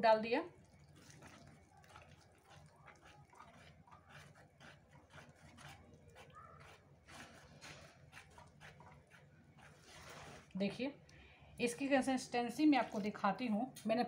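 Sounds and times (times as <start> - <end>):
spatula scraping plastic bowl: 0.9 - 10.8.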